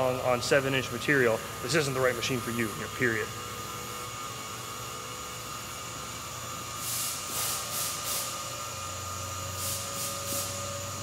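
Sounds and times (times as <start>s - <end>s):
lathe machine hum: 0.0s - 11.0s
coolant spray hissing: 6.7s - 8.6s, 9.5s - 11.0s.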